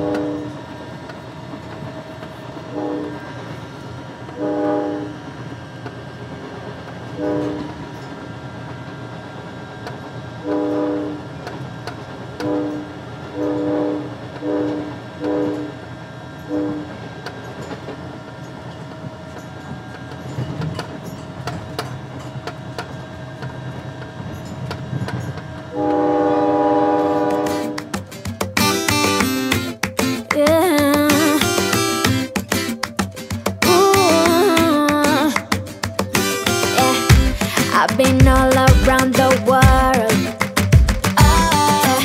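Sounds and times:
steam locomotive whistle: 0.0 - 0.7, 2.6 - 5.3, 7.1 - 7.9, 10.4 - 11.4, 12.4 - 15.9, 16.5 - 17.0, 25.7 - 27.9.

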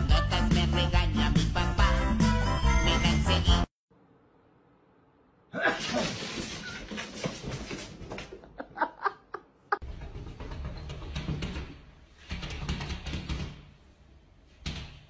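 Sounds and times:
person laughing: 8.3 - 9.8.

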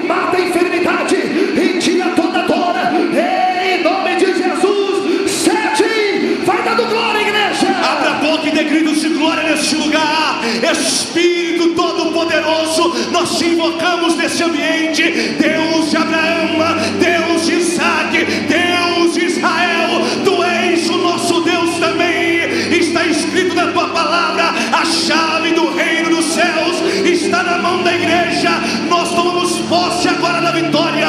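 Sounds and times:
man singing into a microphone: 8.8 - 31.0
instrumental backing chords: 10.4 - 31.0.

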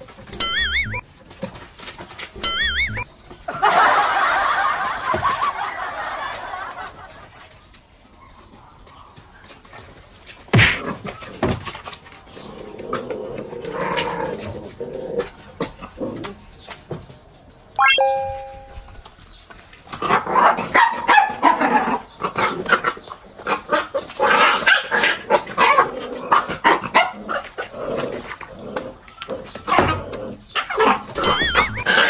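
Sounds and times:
puppies barking and yipping: 0.4 - 1.0, 2.4 - 3.0, 29.0 - 32.0
bell-like ding: 17.8 - 19.0.

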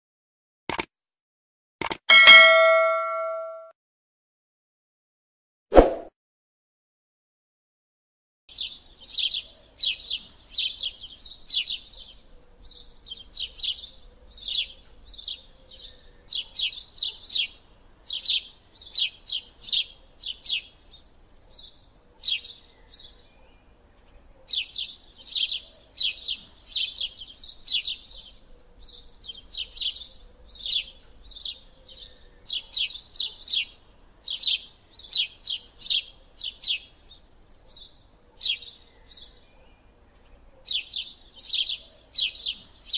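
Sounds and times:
small birds chirping: 8.5 - 42.9.

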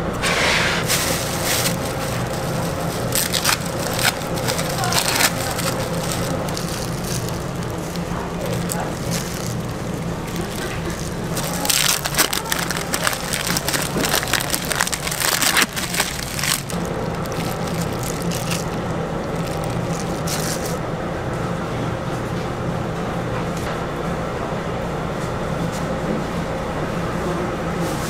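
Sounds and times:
steady low hum: 0.0 - 27.9
plastic bag crinkling: 0.8 - 20.8.

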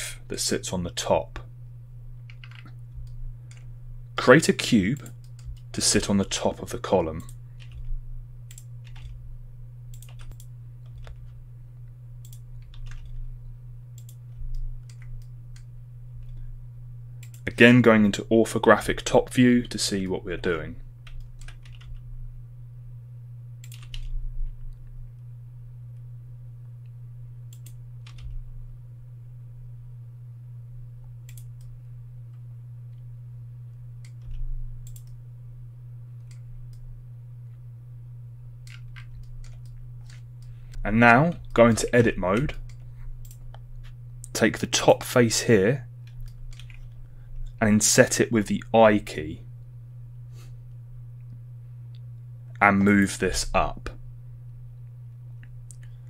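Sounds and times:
low electrical hum: 0.0 - 56.0
keyboard and mouse clicking: 2.3 - 3.7, 7.2 - 9.2, 9.9 - 11.3, 12.2 - 13.2, 14.0 - 16.4, 21.1 - 22.0, 23.6 - 24.1, 27.5 - 28.4, 31.2 - 31.7, 34.0 - 35.2, 38.6 - 43.6, 46.1 - 47.0.

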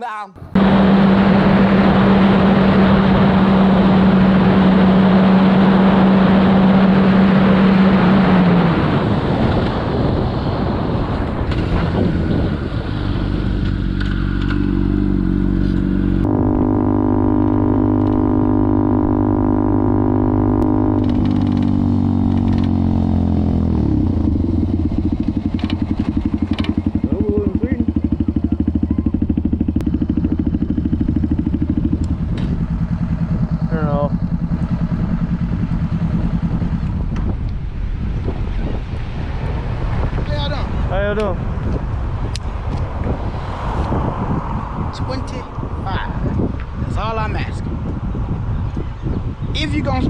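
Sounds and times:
motorcycle engine slowing: 0.4 - 49.4
heavy wind noise: 0.4 - 50.0
sport bike engine running: 0.5 - 38.8.

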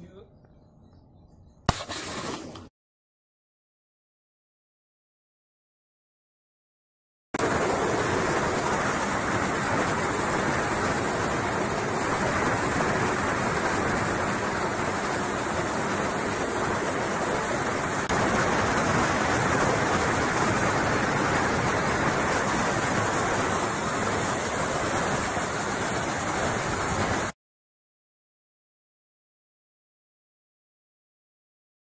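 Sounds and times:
pressure washer spraying concrete: 1.7 - 2.6, 17.5 - 27.3.

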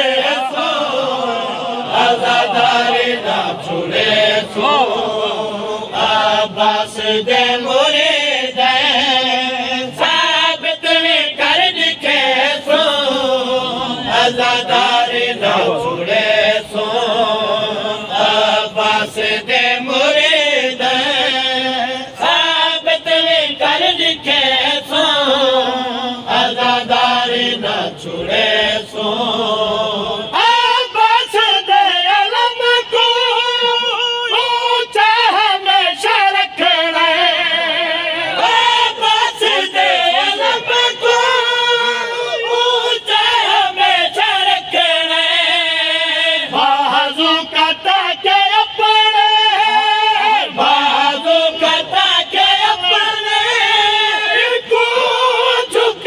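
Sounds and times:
man singing unaccompanied: 0.0 - 56.0
voices singing along: 0.0 - 56.0.

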